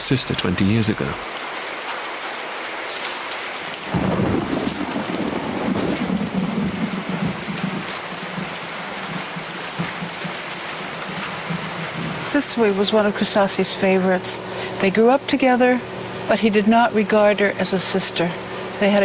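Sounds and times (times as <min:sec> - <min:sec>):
heavy rain: 0:00.0 - 0:19.0
thunder rumbling: 0:03.8 - 0:14.4.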